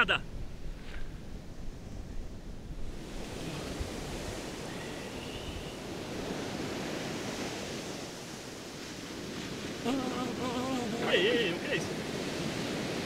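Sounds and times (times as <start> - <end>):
wind on microphone: 0.2 - 11.1
ocean surf breaking: 2.8 - 13.0.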